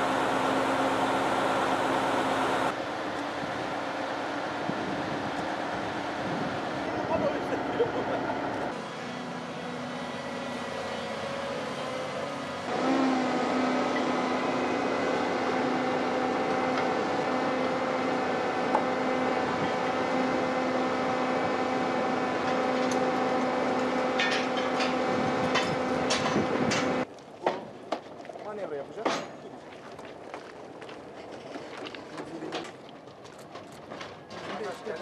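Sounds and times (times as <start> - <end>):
heavy construction machinery humming: 0.0 - 27.6.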